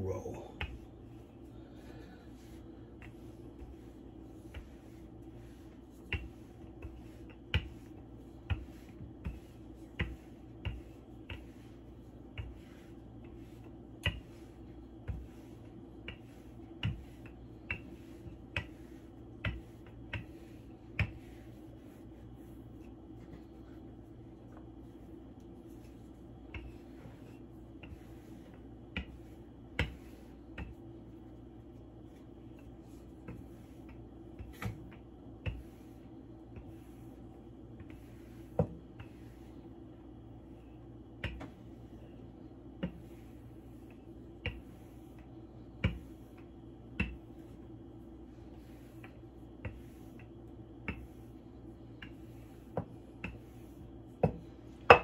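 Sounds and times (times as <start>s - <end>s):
faint steady hum: 0.0s - 55.0s
rolling pin knocking on wooden board: 4.4s - 11.7s, 12.3s - 21.6s, 26.5s - 30.9s, 37.8s - 39.4s, 45.8s - 46.2s, 52.0s - 53.6s, 54.2s - 55.0s.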